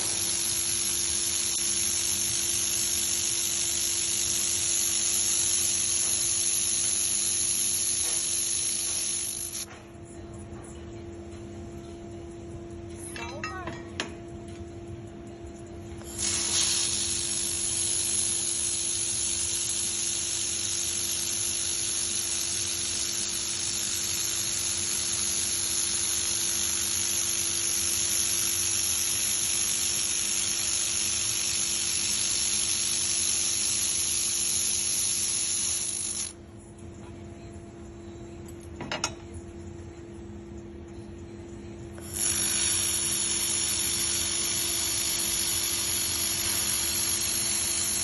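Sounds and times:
laser welder gas hiss and whine: 0.0s - 9.7s, 16.0s - 36.4s, 42.0s - 48.0s
welding machine low hum: 0.0s - 9.8s, 14.3s - 37.2s, 41.6s - 48.0s.

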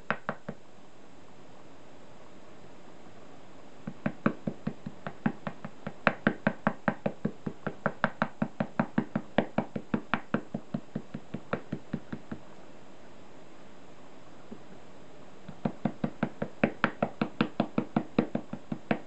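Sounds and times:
brush tapping: 0.0s - 0.6s, 3.8s - 12.5s, 14.5s - 14.8s, 15.4s - 19.0s.

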